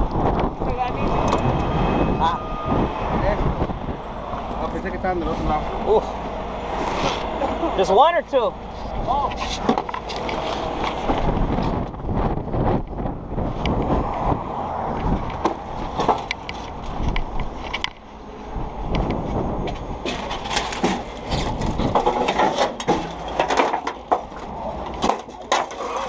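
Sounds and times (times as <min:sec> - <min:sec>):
wind rumble on microphone: 0:00.0 - 0:06.0, 0:08.6 - 0:22.3
rigging gear clanking: 0:19.0 - 0:26.0.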